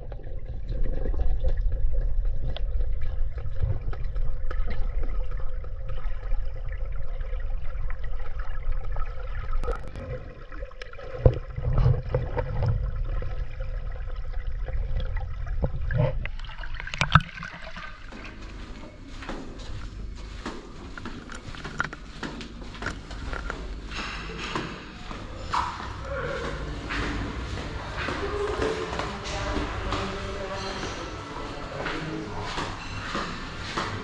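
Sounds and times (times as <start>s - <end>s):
muffled underwater rumble and gurgle: 0.0s - 34.0s
water lapping: 9.1s - 34.0s
underwater knocks: 10.8s - 13.4s, 14.8s - 18.3s.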